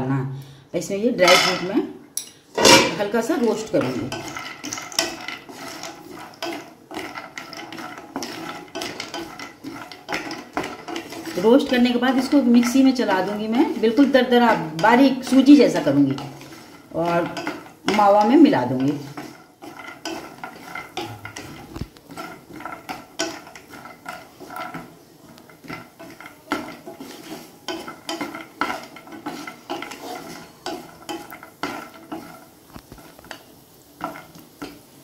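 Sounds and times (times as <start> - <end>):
spatula stirring nuts in frying pan: 1.2 - 35.0.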